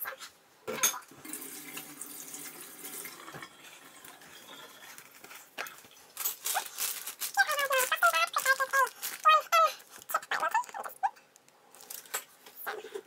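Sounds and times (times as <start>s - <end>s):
water running from a tap: 1.2s - 4.8s.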